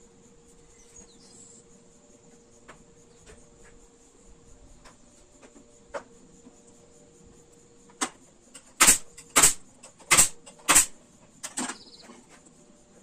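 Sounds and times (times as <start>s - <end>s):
pneumatic pin nailer shots: 8.0s - 11.8s.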